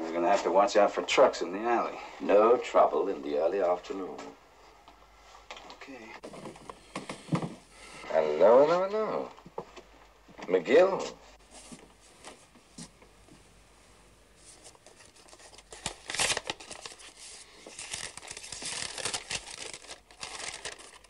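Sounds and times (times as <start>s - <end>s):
paper crinkling and tearing: 14.4s - 21.0s.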